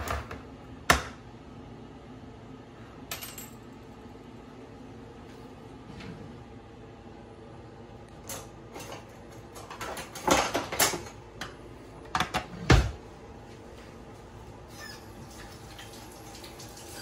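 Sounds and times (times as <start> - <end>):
metal utensils clattering in drawer: 8.3 - 11.2.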